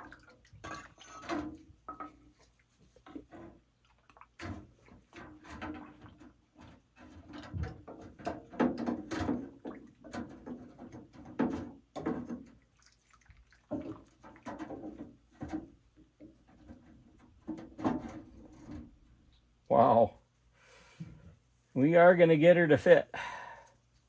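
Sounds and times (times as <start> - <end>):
metal knocks and scrapes in tank: 0.0 - 12.7, 13.7 - 19.2.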